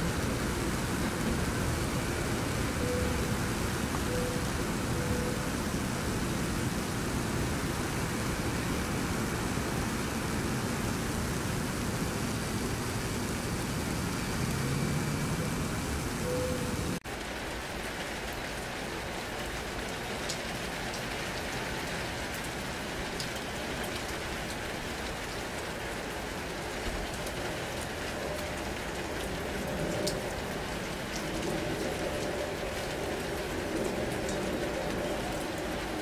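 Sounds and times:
rain hissing: 0:00.0 - 0:36.0
raindrop ticks: 0:17.2 - 0:36.0.

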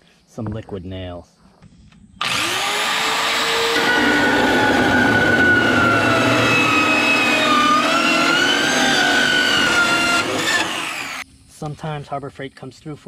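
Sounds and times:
circular saw cutting metal: 0:02.2 - 0:11.2.

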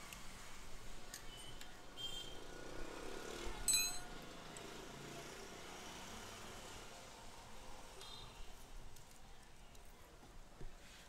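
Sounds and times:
metallic clinks of hand tools: 0:03.7 - 0:04.1.

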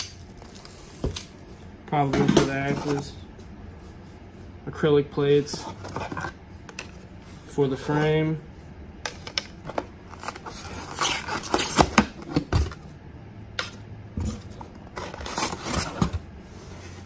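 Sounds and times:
foam packing rustling: 0:14.2 - 0:16.2.

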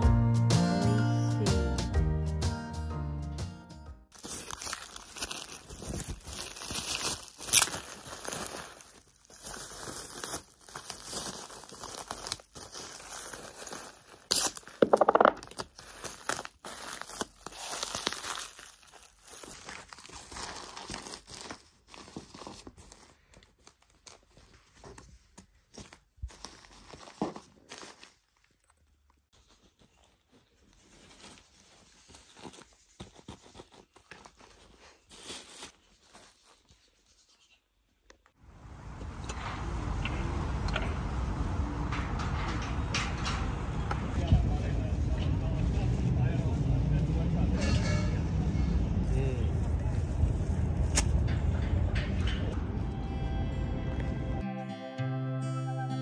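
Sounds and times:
bubble wrap crinkling: 0:04.1 - 0:37.6, 0:49.4 - 0:51.2
clothes and plastic bags rustling: 0:04.1 - 0:38.3, 0:48.8 - 0:53.0
packing tape pulled off roll: 0:04.2 - 0:24.4, 0:49.8 - 0:51.3.

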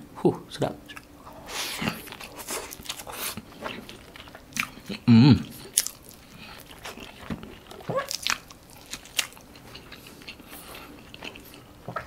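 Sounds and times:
chewing food: 0:00.9 - 0:12.0
person humming: 0:05.0 - 0:05.6.

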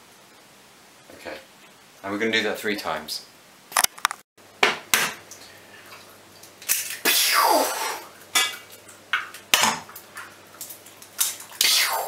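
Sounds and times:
egg sizzling in hot oil: 0:05.0 - 0:12.0.

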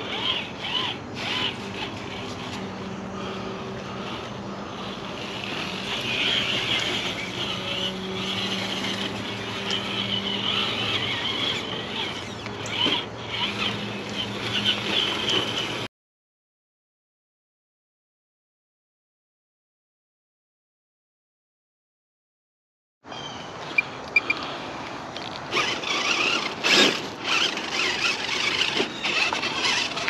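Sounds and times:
toy car electric motor whining: 0:00.0 - 0:15.9, 0:23.6 - 0:30.0.

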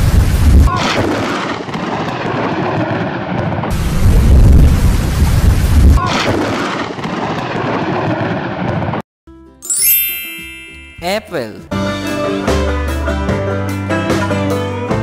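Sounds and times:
thunder crash: 0:03.3 - 0:06.0
short musical chime: 0:09.6 - 0:11.7.

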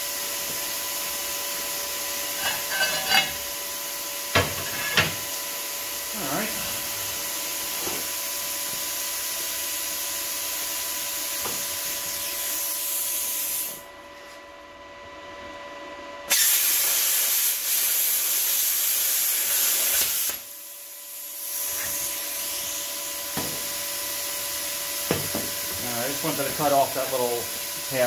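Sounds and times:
plasma cutter hissing: 0:11.2 - 0:13.8, 0:16.3 - 0:23.0, 0:25.6 - 0:28.0.

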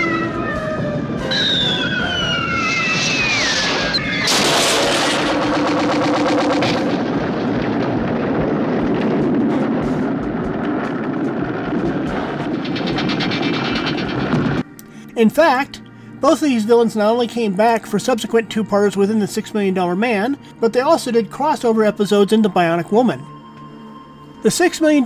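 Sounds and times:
whistle falling in pitch: 0:01.2 - 0:04.3
loud explosion blast: 0:01.3 - 0:14.6
rumble with scattered cracks: 0:04.2 - 0:14.9.

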